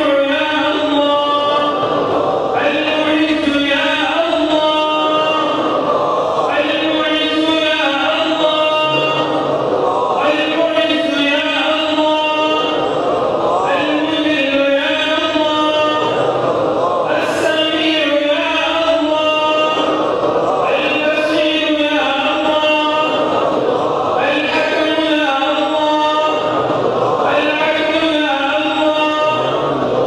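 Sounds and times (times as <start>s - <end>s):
man chanting: 0.0s - 30.0s.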